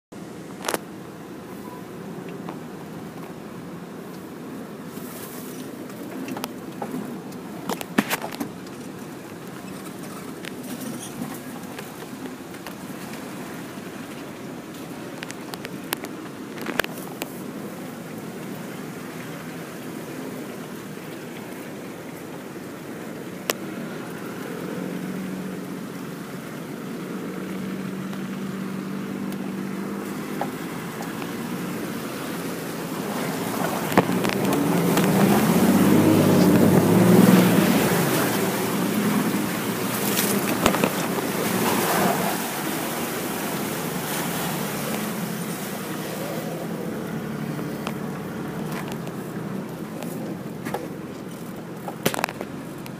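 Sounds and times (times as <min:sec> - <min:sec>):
vehicle engine running: 0:00.1 - 0:52.9
water rushing and splashing: 0:00.1 - 0:52.9.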